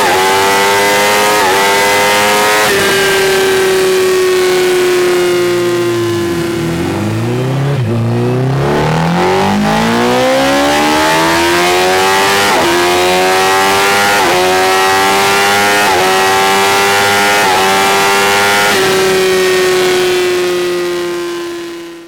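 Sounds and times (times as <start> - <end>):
motorcycle engine revving: 0.0 - 21.9
quickshifter upshifts: 1.8 - 19.2.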